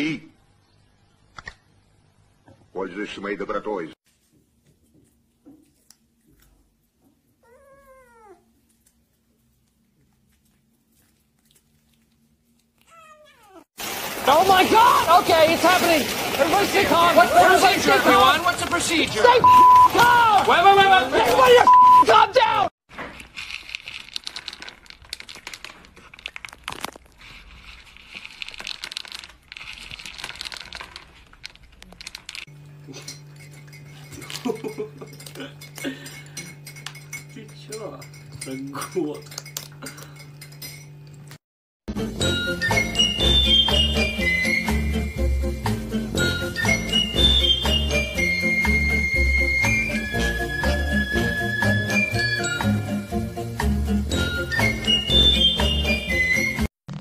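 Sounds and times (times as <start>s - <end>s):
kitten meowing: 7.4s - 8.4s
pellets shifting in plastic bowl: 13.8s - 21.5s, 22.9s - 32.5s
cat crunching kibble: 23.0s - 32.5s.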